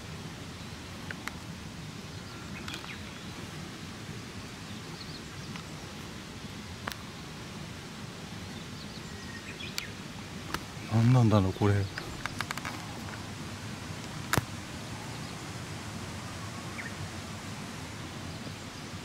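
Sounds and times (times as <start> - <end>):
low background rush: 0.0 - 19.0
small clicks and rustles: 1.0 - 1.5, 2.6 - 3.3, 11.9 - 13.3
faint bird chirps: 8.5 - 10.2.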